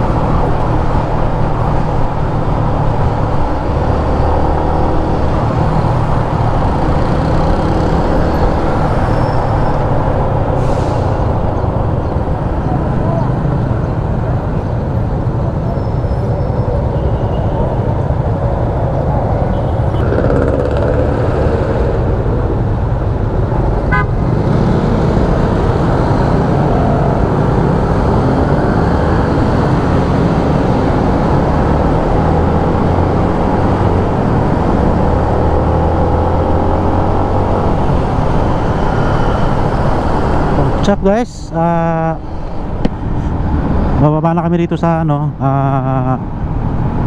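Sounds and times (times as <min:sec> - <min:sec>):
motorcycle engine and wind rumble: 0:00.0 - 0:10.6, 0:11.2 - 0:47.0
horn tooting: 0:23.9 - 0:24.2.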